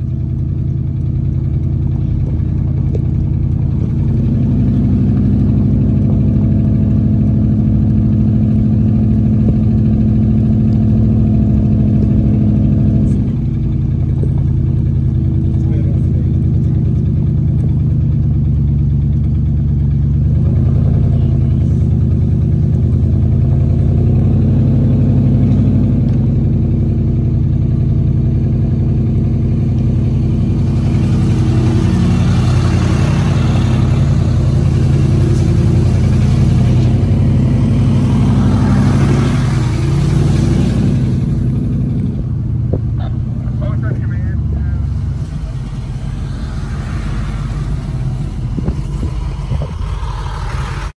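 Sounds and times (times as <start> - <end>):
vehicle engine running at low revs: 0.0 - 51.0
broad rushing noise: 30.3 - 41.8, 43.0 - 51.0.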